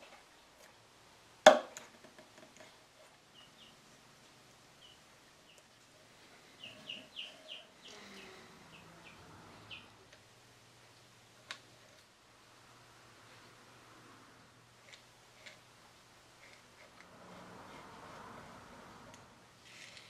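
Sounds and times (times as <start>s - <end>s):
small bird chirping: 3.3s - 3.8s, 4.8s - 5.7s, 6.4s - 10.0s.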